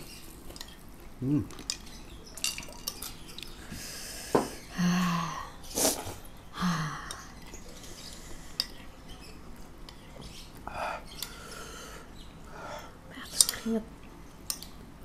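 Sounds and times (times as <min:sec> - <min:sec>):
person sniffing: 0:05.7 - 0:06.2
person humming: 0:06.6 - 0:07.2.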